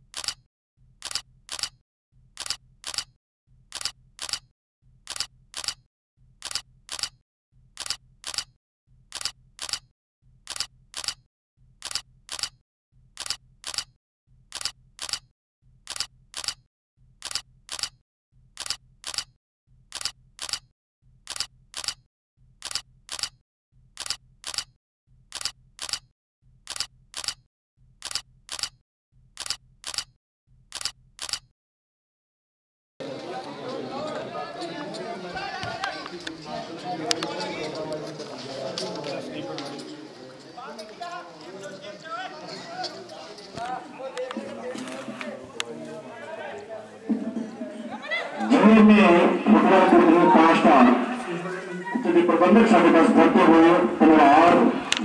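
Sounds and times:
camera shutter clicks: 0:00.1 - 0:00.4, 0:01.0 - 0:01.8, 0:02.4 - 0:03.1, 0:03.7 - 0:04.4, 0:05.1 - 0:05.8, 0:06.4 - 0:07.2, 0:07.8 - 0:08.5, 0:09.1 - 0:09.8, 0:10.5 - 0:11.2, 0:11.8 - 0:12.6, 0:13.2 - 0:13.9, 0:14.5 - 0:15.2, 0:15.9 - 0:16.6, 0:17.2 - 0:18.0, 0:18.6 - 0:19.3, 0:19.9 - 0:20.6, 0:21.3 - 0:22.0, 0:22.6 - 0:23.4, 0:24.0 - 0:24.7, 0:25.3 - 0:26.0, 0:26.7 - 0:27.4, 0:28.0 - 0:28.8, 0:29.4 - 0:30.1, 0:30.7 - 0:31.5.

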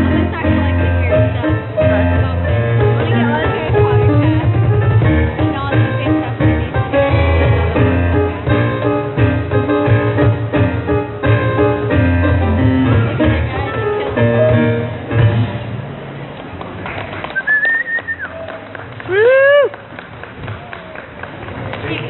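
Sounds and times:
piano notes ringing: 0:00.0 - 0:16.3.

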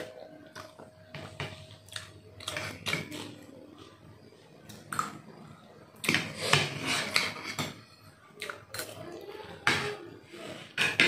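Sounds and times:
cutlery scraping ceramic bowl: 0:02.4 - 0:03.4, 0:06.0 - 0:07.8.

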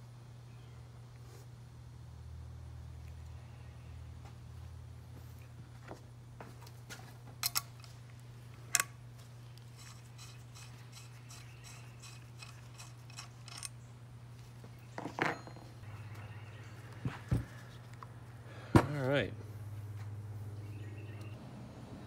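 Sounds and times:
steady low hum: 0:00.0 - 0:22.0
metallic clicks of hand tools: 0:07.4 - 0:08.0, 0:09.8 - 0:13.8.

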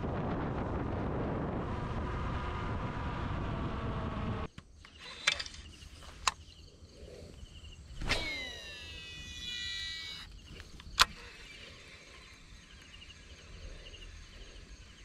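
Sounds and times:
wind noise on microphone: 0:00.0 - 0:04.5
motorcycle engine: 0:01.2 - 0:04.5
insect buzz: 0:04.5 - 0:15.0
sharp clicks: 0:08.0 - 0:11.5.

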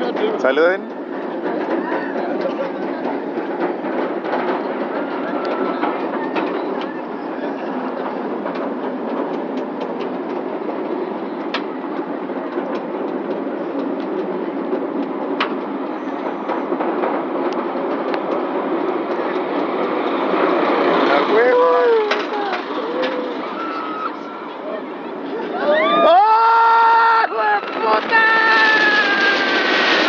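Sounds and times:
roller coaster clattering on track: 0:00.0 - 0:30.0.

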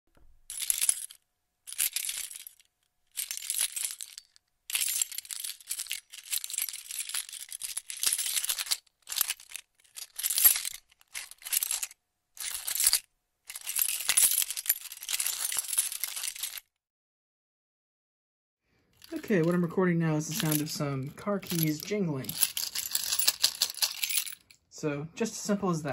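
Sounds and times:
car keys jingling: 0:00.5 - 0:16.6, 0:20.2 - 0:24.5.

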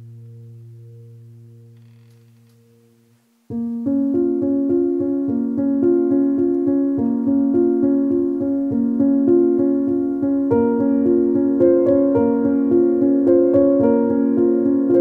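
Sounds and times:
keyboard melody: 0:02.5 - 0:15.0.

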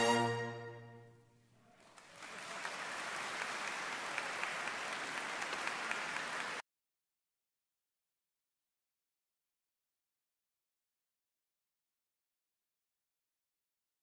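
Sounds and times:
orchestra sustained chord: 0:00.0 - 0:01.1
audience applause: 0:01.7 - 0:06.6.

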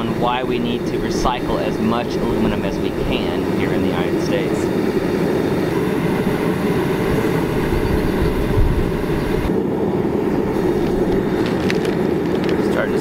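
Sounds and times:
propane burner roaring: 0:00.0 - 0:13.0.

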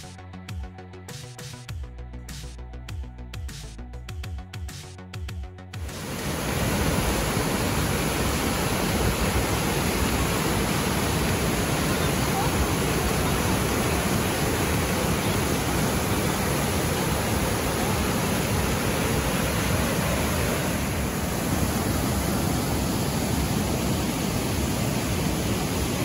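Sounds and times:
waterfall rushing: 0:05.8 - 0:26.0.

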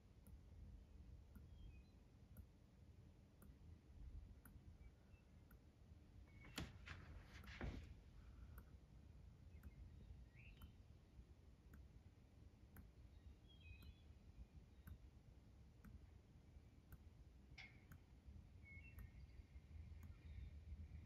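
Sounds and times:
soft repeating click: 0:00.2 - 0:00.7, 0:01.3 - 0:02.6, 0:03.4 - 0:03.7, 0:04.4 - 0:05.7, 0:09.5 - 0:10.9, 0:11.7 - 0:12.0, 0:12.7 - 0:16.1, 0:16.8 - 0:20.9
faint bird chirps: 0:01.3 - 0:02.5, 0:04.3 - 0:11.2, 0:12.7 - 0:17.0, 0:17.6 - 0:21.0.

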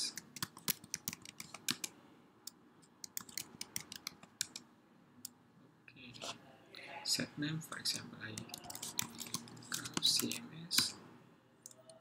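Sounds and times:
computer keyboard key clicks: 0:00.1 - 0:01.9, 0:03.0 - 0:04.6.

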